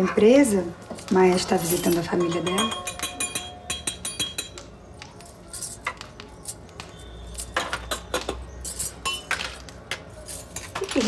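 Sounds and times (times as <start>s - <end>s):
dishes and utensils clinking: 0.9s - 11.0s.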